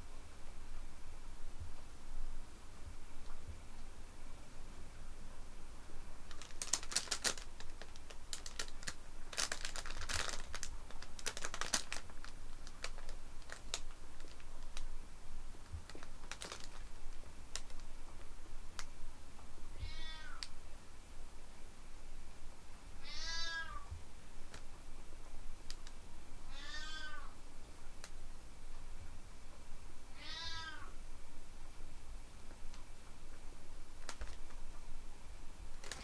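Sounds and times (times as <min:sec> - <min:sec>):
nylon tunnel rustling and crackling: 0:06.2 - 0:18.9, 0:33.9 - 0:34.8, 0:35.6 - 0:36.0
cat meow: 0:19.8 - 0:20.4, 0:23.0 - 0:23.9, 0:26.5 - 0:27.4, 0:30.1 - 0:31.0.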